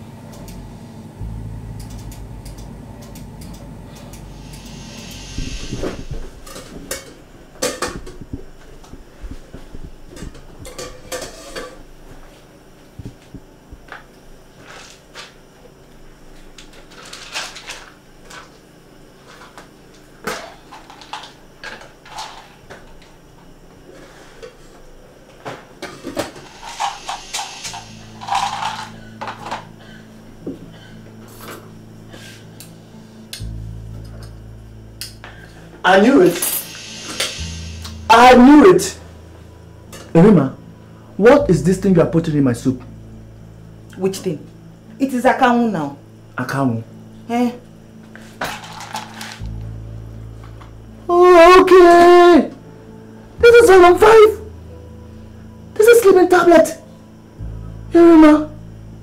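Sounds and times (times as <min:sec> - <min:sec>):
pots and pans clattering: 0:10.2 - 0:11.8.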